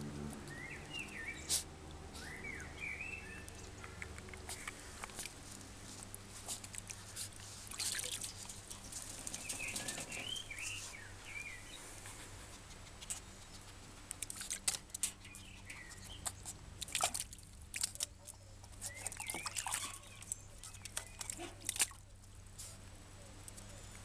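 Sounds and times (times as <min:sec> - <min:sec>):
water splashing and dripping: 0:03.5 - 0:10.4, 0:14.1 - 0:22.2.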